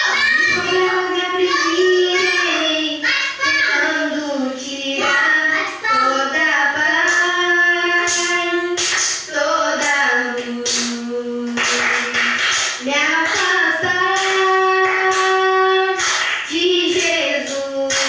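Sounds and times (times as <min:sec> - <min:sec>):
girl singing into microphone: 0:00.0 - 0:18.0.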